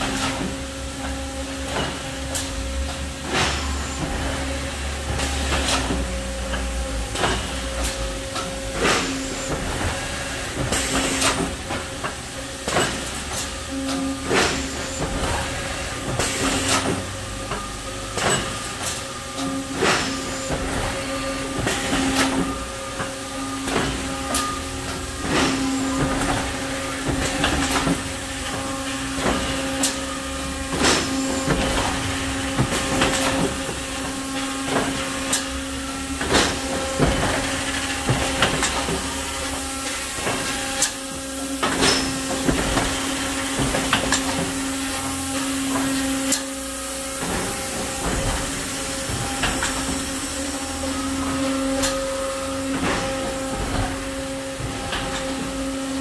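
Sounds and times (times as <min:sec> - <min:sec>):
machine clanks and clicks: 0:00.0 - 0:46.5, 0:47.2 - 0:56.0
machinery hum: 0:00.0 - 0:56.0.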